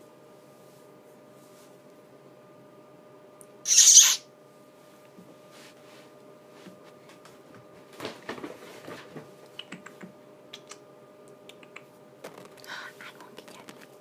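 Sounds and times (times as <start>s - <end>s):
parrot feet clicking and scratching: 11.6s - 14.0s.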